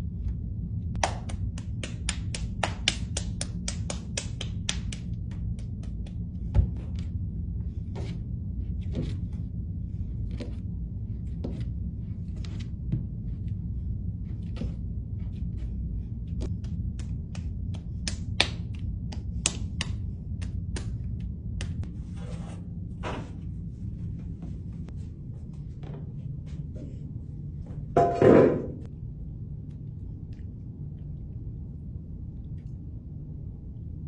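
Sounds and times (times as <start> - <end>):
low room hum: 0.0 - 34.0
wet clay slapping: 1.0 - 6.3.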